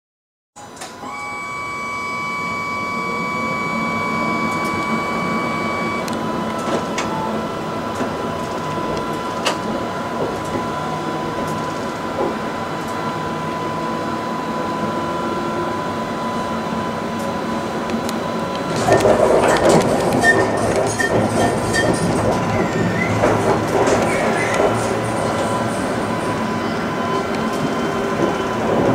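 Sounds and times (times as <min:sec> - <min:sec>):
tram electrical whine: 0:00.6 - 0:28.9
wheels rumbling and rattling on rails: 0:06.0 - 0:28.9.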